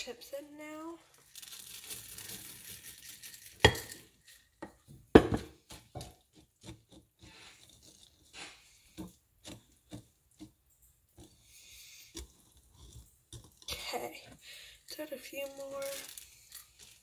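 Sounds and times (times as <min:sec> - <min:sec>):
chocolate chips rattling from jar: 0:01.1 - 0:04.5, 0:14.8 - 0:17.0.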